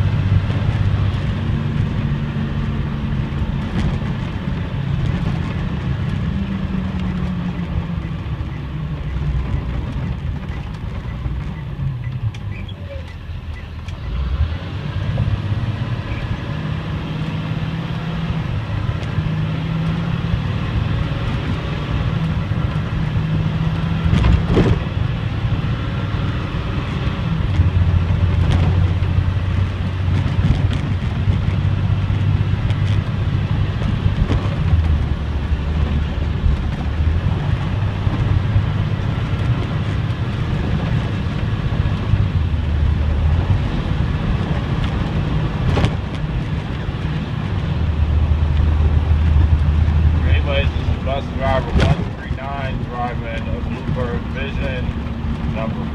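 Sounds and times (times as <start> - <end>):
diesel bus engine running: 0.0 - 55.9
road noise: 0.0 - 55.9
cab rattle: 26.7 - 55.9.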